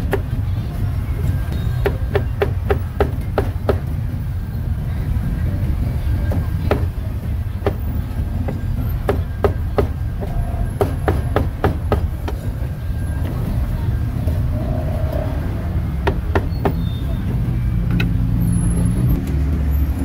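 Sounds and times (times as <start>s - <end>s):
low rumble: 3.3s - 19.2s.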